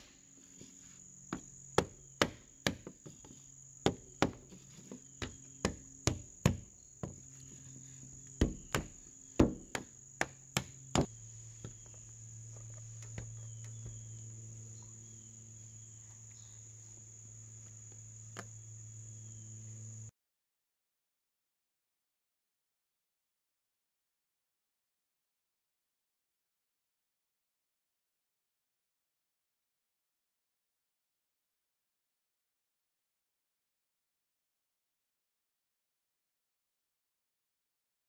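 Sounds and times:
insects trilling: 0.0 - 20.1
wooden block knocking on frame: 1.3 - 7.2, 8.4 - 11.8.

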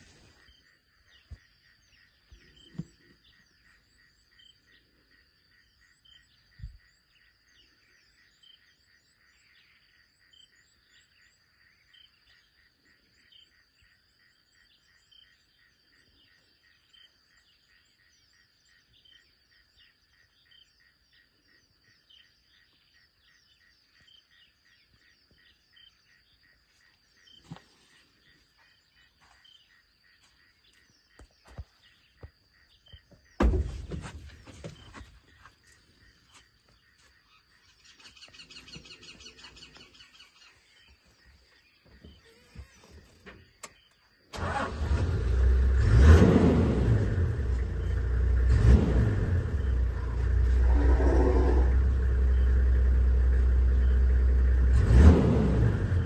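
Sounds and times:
insect chorus trilling: 0.3 - 33.8, 49.5 - 54.5
low thumps: 33.4 - 35.0.

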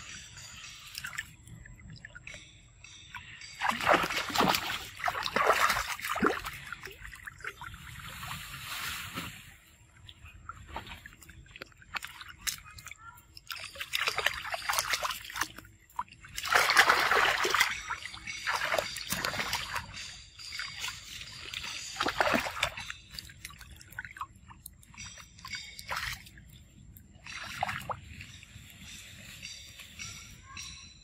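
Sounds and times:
water sloshing and trickling: 0.0 - 30.4
monkeys splashing in water: 16.3 - 19.9.

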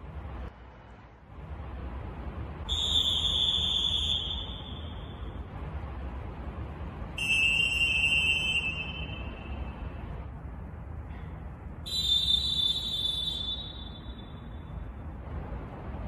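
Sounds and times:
low background rumble: 0.0 - 16.0
referee whistle blasts: 2.7 - 5.2, 7.2 - 9.6, 11.9 - 14.6.

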